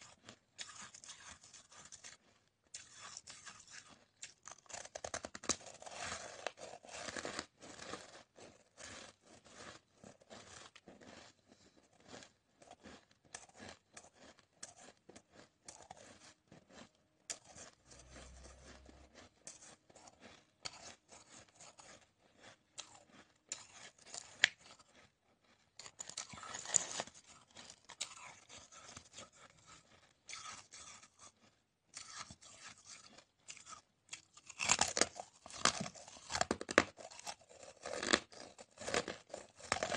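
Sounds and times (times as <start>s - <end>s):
ice crunching being chewed: 0.0s - 39.9s.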